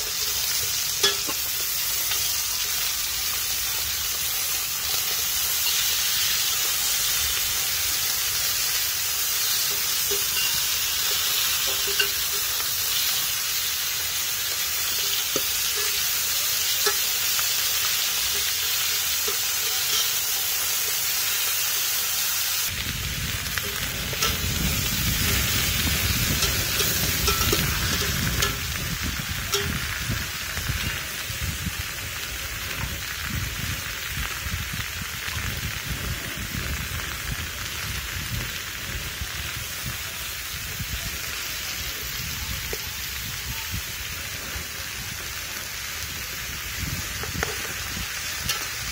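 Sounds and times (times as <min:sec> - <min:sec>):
food sizzling in a pot: 0:00.0 - 0:48.9
metal spatula clinking on pot: 0:00.9 - 0:02.3, 0:09.6 - 0:12.6, 0:15.0 - 0:17.4, 0:18.3 - 0:20.5, 0:26.3 - 0:28.7
low rumble: 0:22.7 - 0:30.8.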